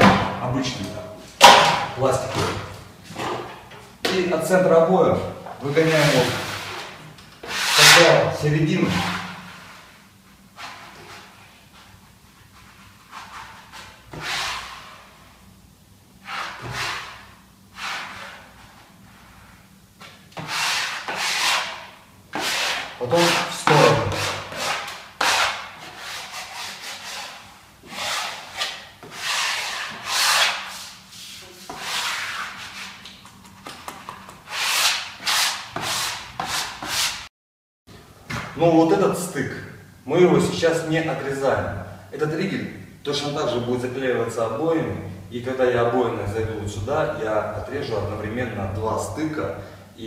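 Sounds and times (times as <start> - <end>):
smoother scraping across wallpaper: 5.7 - 8.2, 12.3 - 15.3, 16.2 - 19.7, 22.4 - 33.0.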